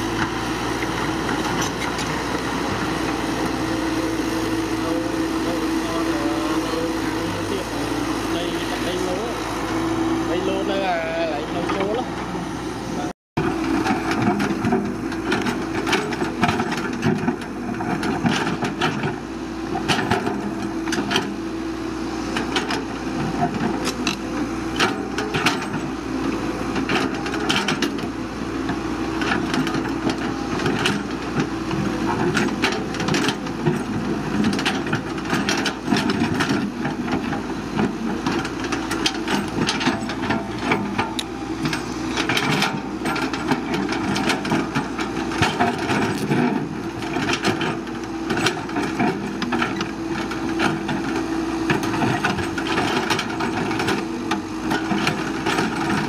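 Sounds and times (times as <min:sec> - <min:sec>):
excavator engine humming: 0:00.0 - 0:56.0
sharp cracks and knocks of digging: 0:38.2 - 0:47.6.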